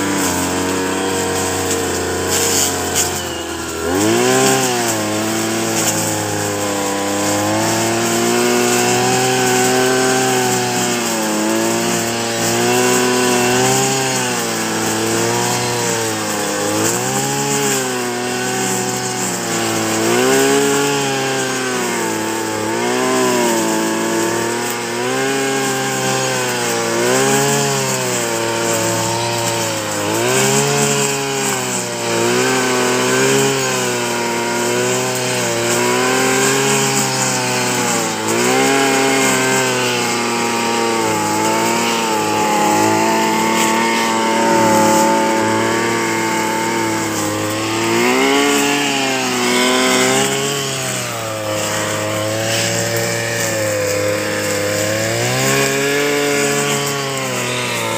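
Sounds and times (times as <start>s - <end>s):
brush cutter engine cutting grass: 0.0s - 57.9s.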